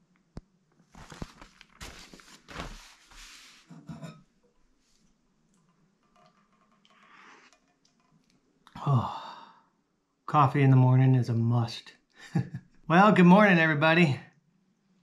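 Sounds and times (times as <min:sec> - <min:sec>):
newspaper rustling and crinkling: 0:00.8 - 0:03.7.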